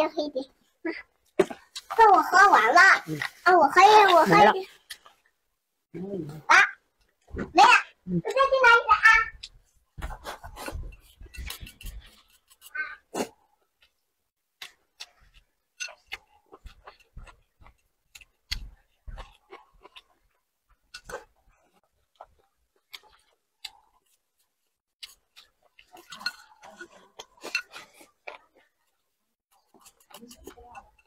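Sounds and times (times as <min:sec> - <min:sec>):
chewing and mouth sounds: 0:09.4 - 0:31.0.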